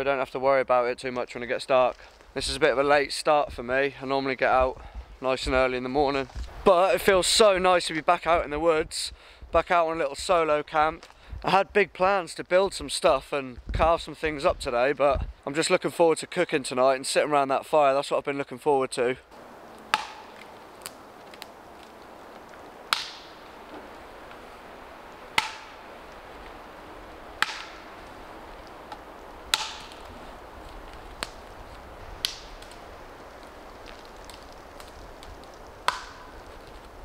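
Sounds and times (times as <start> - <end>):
branches snapping off: 19.7 - 37.0.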